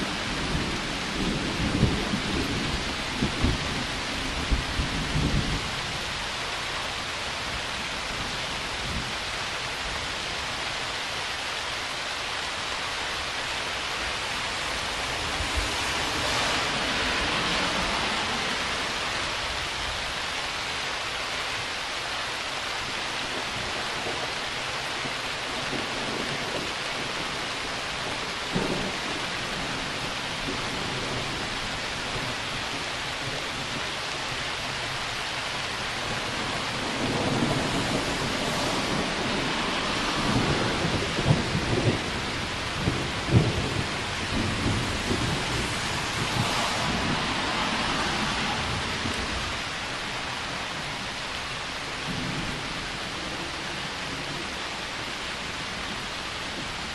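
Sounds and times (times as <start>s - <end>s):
thunder rumbling and cracking: 0.0s - 6.1s, 14.7s - 19.5s, 23.3s - 35.0s, 35.8s - 51.0s
rain falling: 0.0s - 56.9s.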